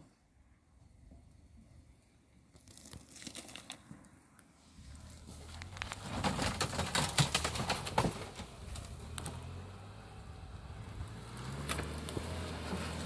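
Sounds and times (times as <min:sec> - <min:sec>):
engine running at low revs: 0:08.6 - 0:13.0.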